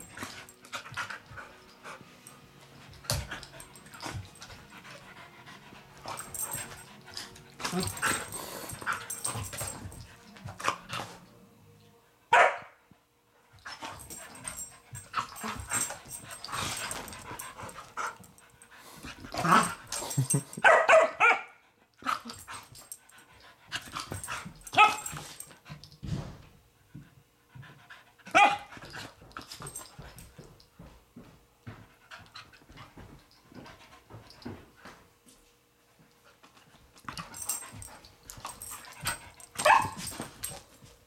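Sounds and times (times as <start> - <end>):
dogs panting and scuffling: 0.0 - 11.3, 13.4 - 20.7, 21.8 - 41.0
dog barks: 12.3 - 12.7, 20.6 - 21.6, 28.3 - 28.7, 39.6 - 40.0.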